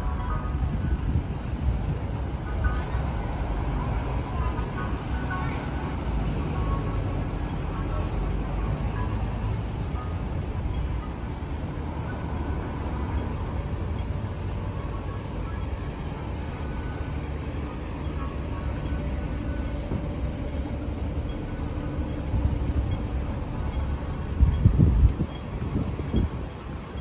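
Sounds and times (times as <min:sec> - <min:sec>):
city road traffic rumble: 0:00.0 - 0:27.0.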